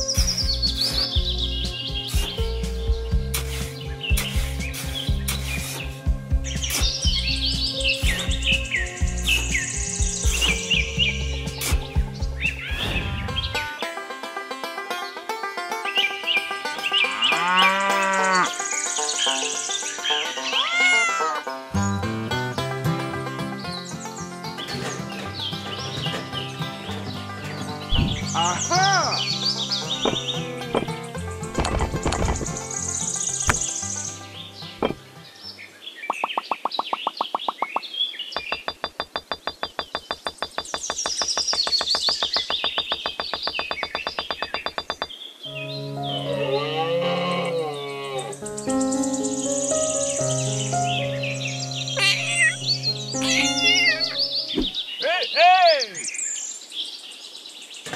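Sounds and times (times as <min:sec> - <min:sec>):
light background music: 0:00.0 - 0:17.1, 0:17.7 - 0:35.7, 0:45.4 - 0:54.7
high bird-like chirps: 0:03.4 - 0:13.6, 0:35.9 - 0:46.5, 0:48.3 - 0:56.6
cat meowing: 0:20.5 - 0:21.4, 0:52.0 - 0:54.5.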